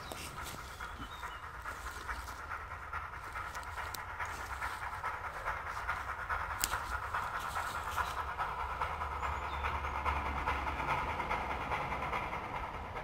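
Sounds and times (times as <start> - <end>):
steam locomotive chuffing: 0.0 - 13.0.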